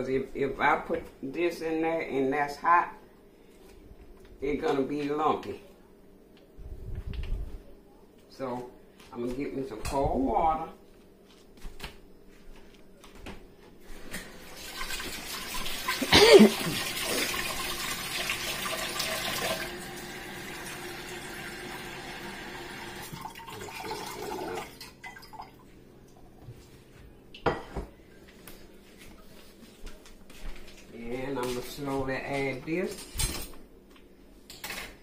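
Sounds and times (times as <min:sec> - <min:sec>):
faucet water into saucepan: 0:14.5 - 0:25.5.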